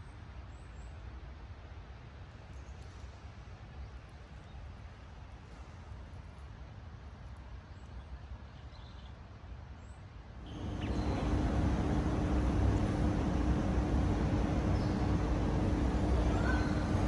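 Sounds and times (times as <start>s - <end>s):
low mechanical hum: 10.2s - 17.0s
faint low rumble: 10.4s - 17.0s
steady rushing noise: 10.4s - 17.0s.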